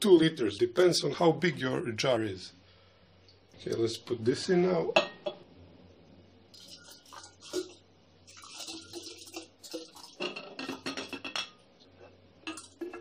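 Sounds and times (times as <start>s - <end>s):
water pouring into a glass pitcher: 6.5s - 11.1s.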